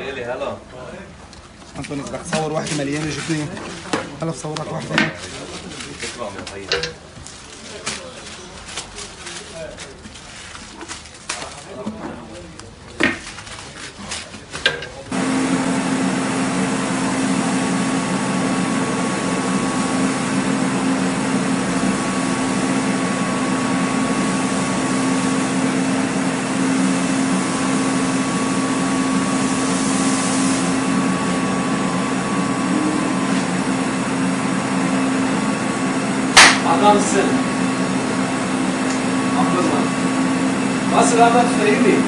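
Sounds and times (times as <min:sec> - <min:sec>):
machine humming with whine: 0:15.1 - 0:42.0.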